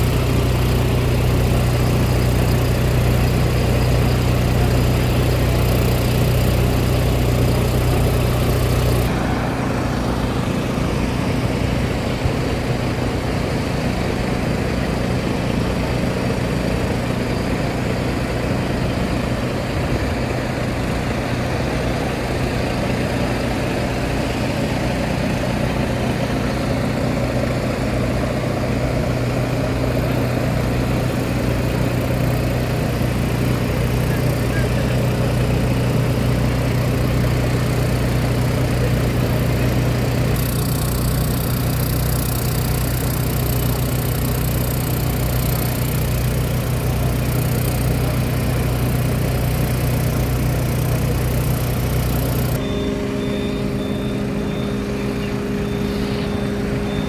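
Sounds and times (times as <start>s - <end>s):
fire truck engine running: 0.0s - 57.0s.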